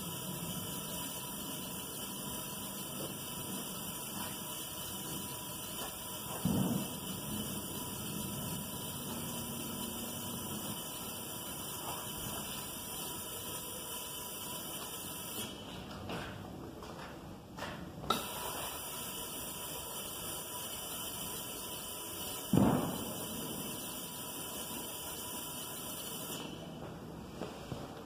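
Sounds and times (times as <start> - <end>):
powder spray gun hissing: 0.0 - 15.6, 18.1 - 26.7
thump: 6.3 - 7.0, 22.5 - 23.1.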